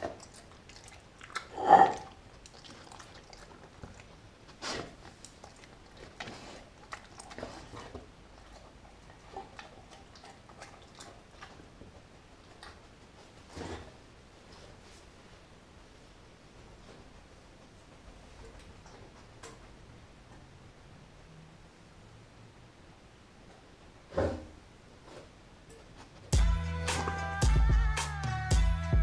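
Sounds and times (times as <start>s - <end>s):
dog chewing meat: 0.0s - 13.4s.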